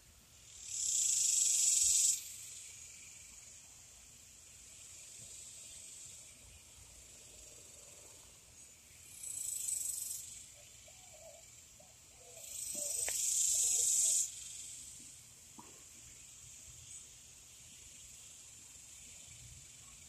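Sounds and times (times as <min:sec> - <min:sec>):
insect buzzing calls: 0:00.3 - 0:20.0
insect high-pitched shrill: 0:00.4 - 0:15.0.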